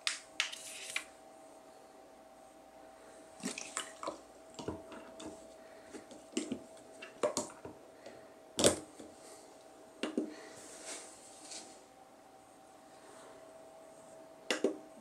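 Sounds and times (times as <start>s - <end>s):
water moving in bottle: 3.4s - 4.2s.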